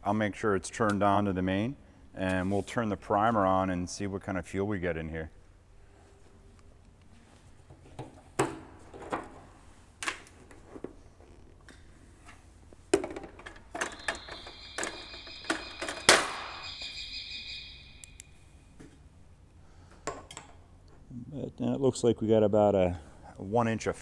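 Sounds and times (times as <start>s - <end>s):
steady high-pitched tone: 13.8s - 18.8s.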